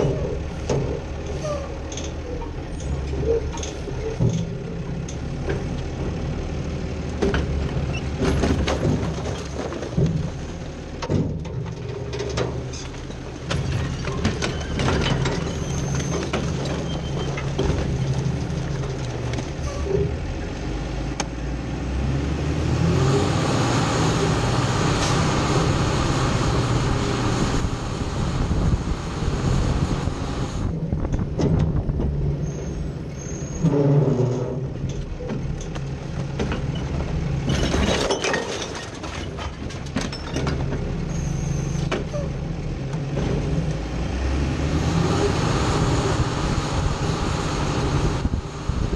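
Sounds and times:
garbage truck engine running: 0.0s - 48.9s
recyclables knocking and clattering: 7.2s - 20.3s, 30.8s - 32.3s, 34.3s - 41.0s.

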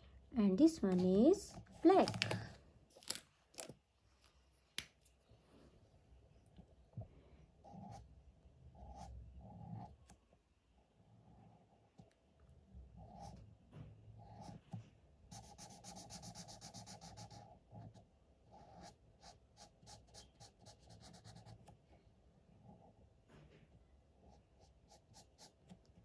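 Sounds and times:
marker rubbing on paper: 15.3s - 17.4s, 18.6s - 21.6s, 24.6s - 25.7s.

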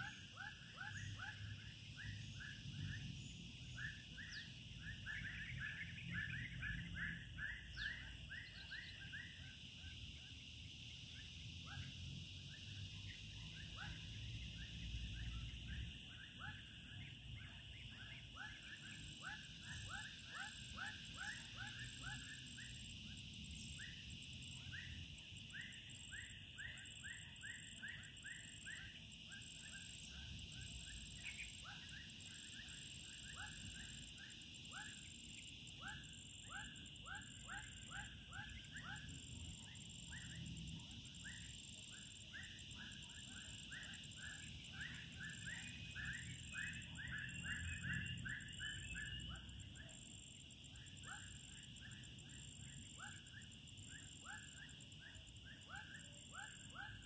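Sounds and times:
rapid repeated chirping calls: 0.0s - 10.4s, 11.1s - 50.0s, 50.7s - 57.0s
high-pitched insect drone: 0.0s - 57.0s.

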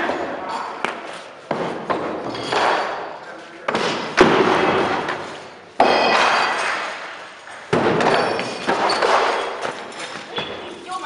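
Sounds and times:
loud impacts: 3.7s - 9.9s.

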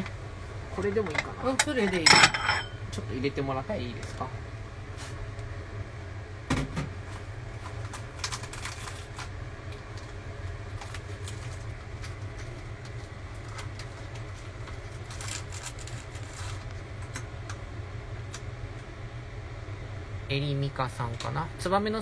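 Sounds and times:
steady low hum: 0.0s - 22.0s
plastic packet crinkling: 7.9s - 9.4s, 13.4s - 16.7s.

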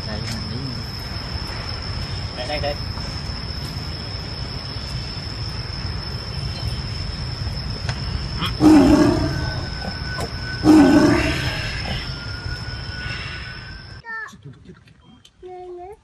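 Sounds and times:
tiger snarling: 8.4s - 9.9s.

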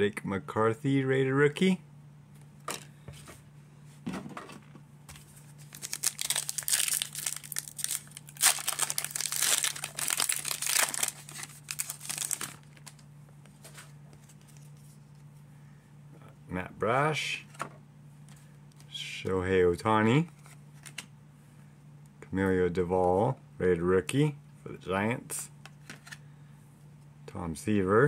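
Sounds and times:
foil wrapper tearing and crinkling: 5.6s - 13.0s.

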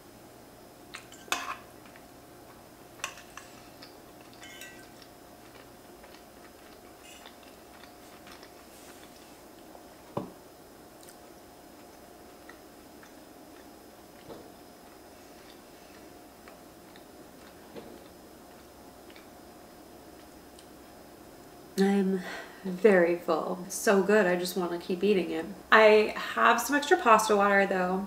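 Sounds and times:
chewing pasta: 1.8s - 10.0s, 10.9s - 20.7s
metal fork clinking on pan: 4.4s - 5.1s.

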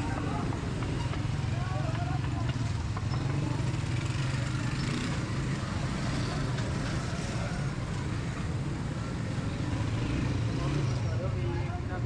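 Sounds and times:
faint voices: 0.0s - 9.3s
motor traffic engine drone: 0.0s - 12.0s.

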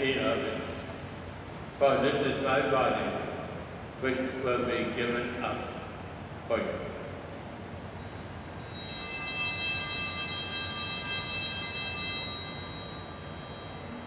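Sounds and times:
altar bells ringing: 7.8s - 14.0s.

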